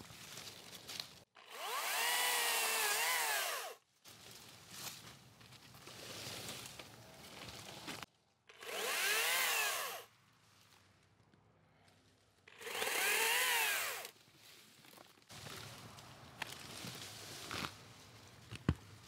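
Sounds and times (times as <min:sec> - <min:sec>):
cordless chainsaw motor whining: 0:01.4 - 0:03.8, 0:08.5 - 0:10.1, 0:12.5 - 0:14.1.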